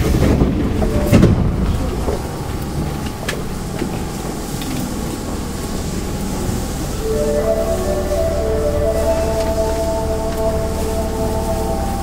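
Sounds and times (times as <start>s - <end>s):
subway train wheels rumbling: 0.0s - 12.0s.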